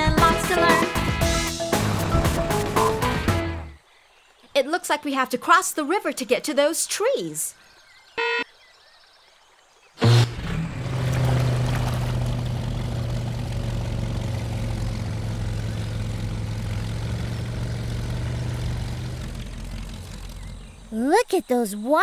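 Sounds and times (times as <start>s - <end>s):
cartoon horn beep: 8.2s - 8.5s
motor droning: 10.0s - 20.9s.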